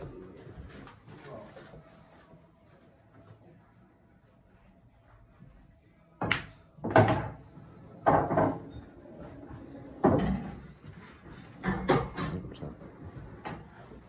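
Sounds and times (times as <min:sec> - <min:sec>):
cue striking ball: 0:06.2 - 0:07.4
pool balls knocking together: 0:06.2 - 0:08.8, 0:09.6 - 0:13.8.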